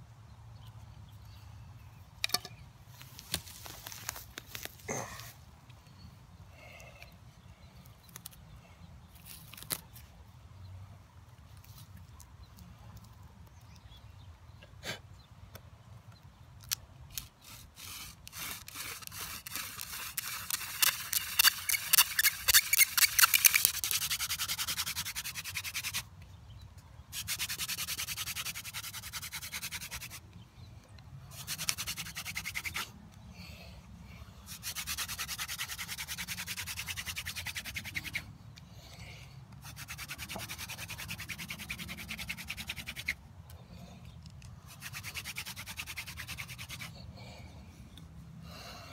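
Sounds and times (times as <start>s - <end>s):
hand drill friction rubbing on wood: 17.1s - 26.0s.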